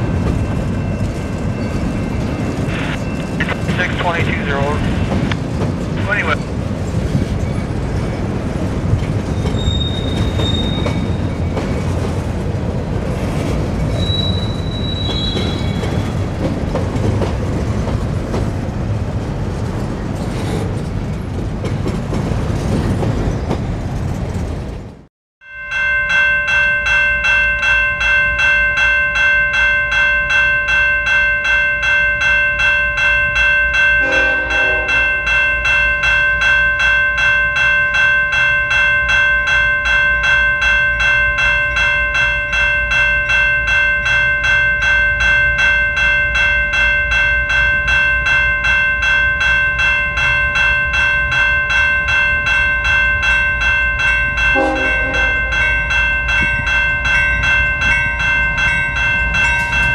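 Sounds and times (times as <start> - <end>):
railroad crossing bell ringing: 0.0 - 6.5, 7.4 - 18.2, 25.4 - 59.9
locomotive horn: 34.0 - 35.1, 54.5 - 55.5.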